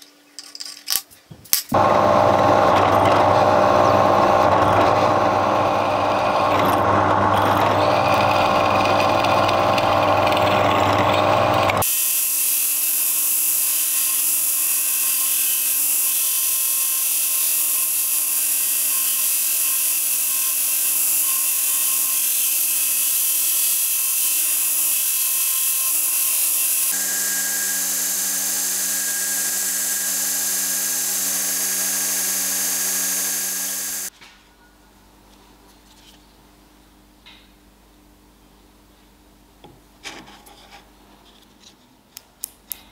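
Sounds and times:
belt grinder hissing on metal: 0:01.7 - 0:34.1
drill press boring through metal: 0:01.8 - 0:34.1.

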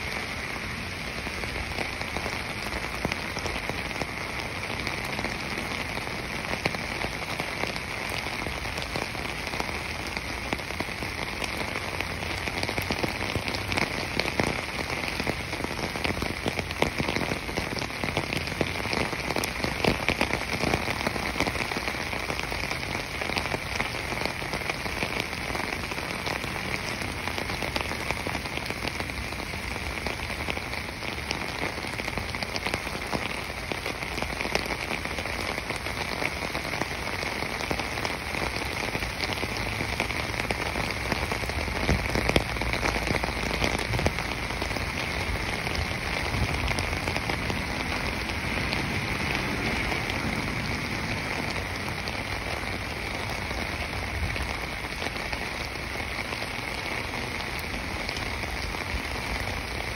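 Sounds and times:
falling water patter: 0:00.0 - 0:59.9.

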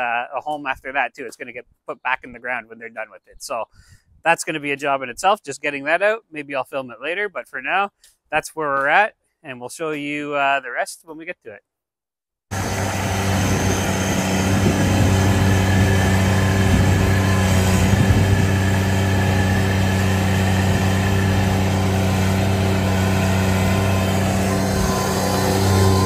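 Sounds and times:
skid steer engine under load: 0:12.5 - 0:26.0.

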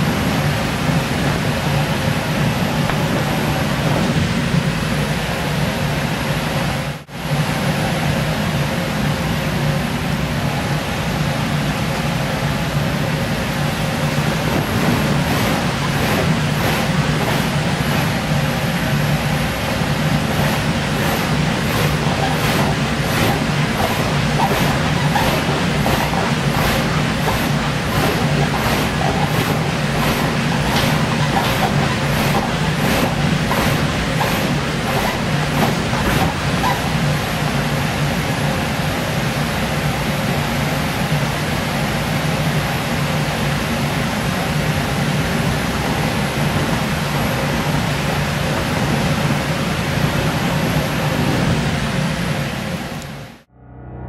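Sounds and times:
air blower humming: 0:00.0 - 0:06.1, 0:13.1 - 0:38.6.

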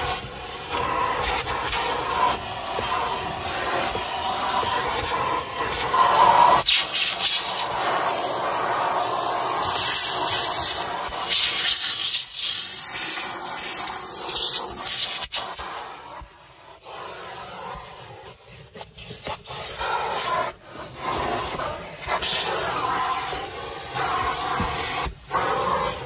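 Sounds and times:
vacuum cleaner running: 0:00.0 - 0:11.6, 0:17.0 - 0:26.0.

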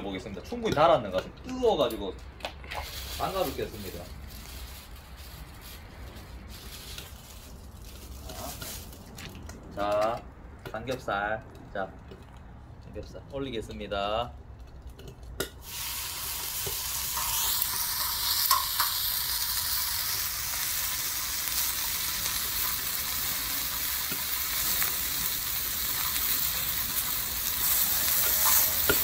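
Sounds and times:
pork sizzling on a griddle: 0:02.6 - 0:09.0, 0:15.4 - 0:29.0.

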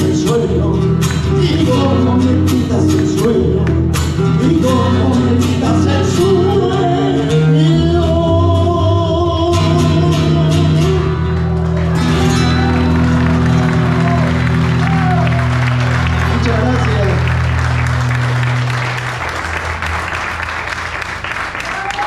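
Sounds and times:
man singing: 0:00.0 - 0:11.4
acoustic guitars strumming: 0:00.0 - 0:21.0.

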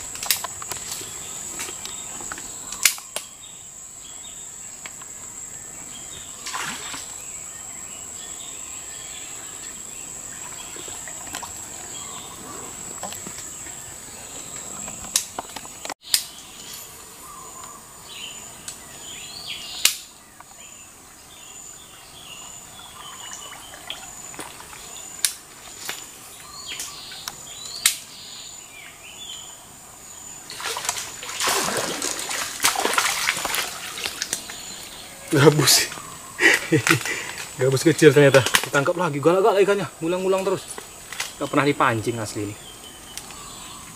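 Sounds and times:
bird calls: 0:00.0 - 0:04.9, 0:05.6 - 0:43.9
high insect drone: 0:00.0 - 0:43.9
water splashing: 0:06.4 - 0:07.2, 0:22.8 - 0:25.8, 0:30.5 - 0:37.5.

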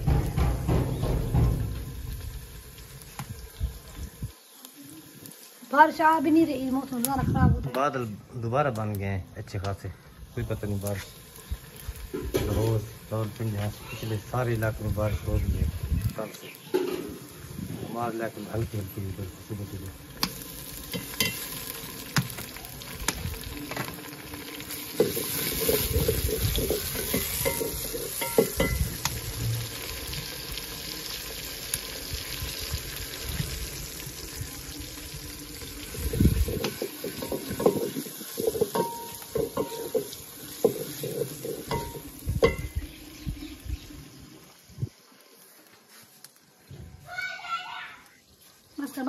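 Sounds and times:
steady hiss: 0:09.9 - 0:46.7
metal ladle scraping in steel pot: 0:25.0 - 0:28.8, 0:36.5 - 0:42.7
dishes set down: 0:38.5 - 0:40.1.

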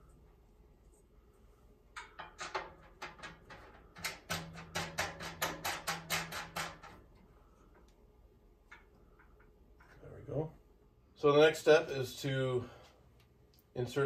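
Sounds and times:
sheet metal clicking and rattling: 0:02.0 - 0:07.2.

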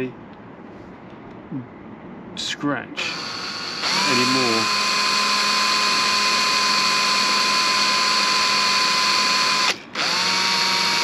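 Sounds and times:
cordless drill drilling: 0:03.0 - 0:11.0.

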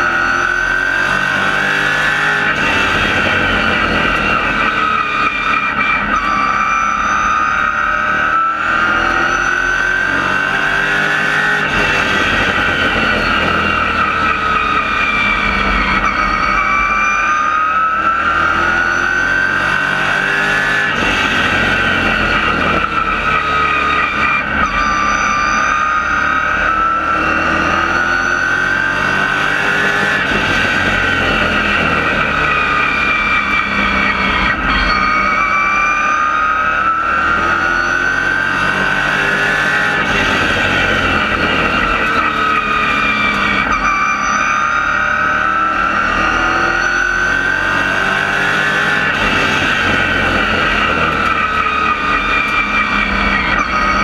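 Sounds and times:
race car engine revving: 0:00.0 - 0:54.0.

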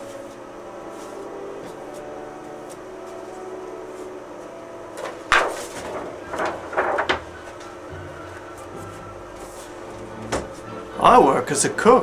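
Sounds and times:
scraping and clattering: 0:05.0 - 0:07.7.

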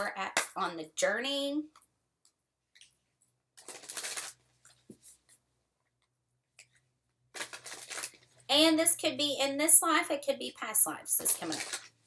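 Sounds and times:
cards shuffling: 0:03.6 - 0:05.4, 0:07.3 - 0:08.4.

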